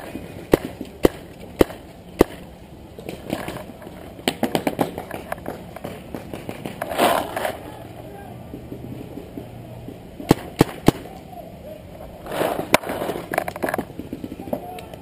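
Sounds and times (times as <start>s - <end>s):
rustling noise: 3.0s - 7.9s, 12.0s - 14.5s.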